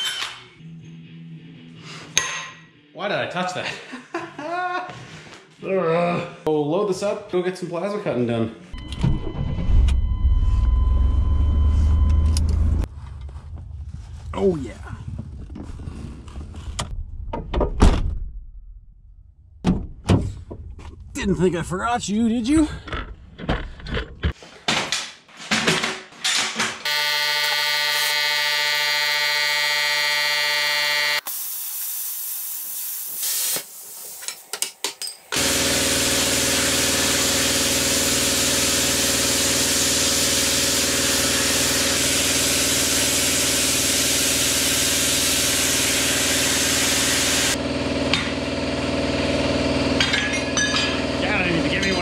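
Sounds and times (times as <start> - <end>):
plasma cutter hissing: 31.2 - 34.5, 35.4 - 47.6.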